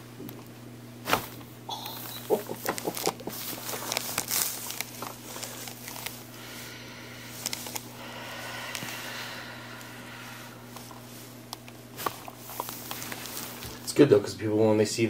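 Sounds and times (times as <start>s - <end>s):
neck joint cracking: 0.2s - 6.3s
neck joints popping: 1.1s - 6.2s.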